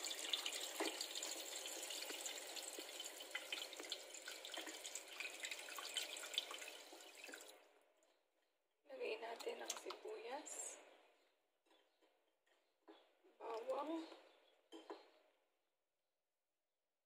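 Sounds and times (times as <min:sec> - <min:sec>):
tap water splashing into a pot: 0:00.0 - 0:07.6.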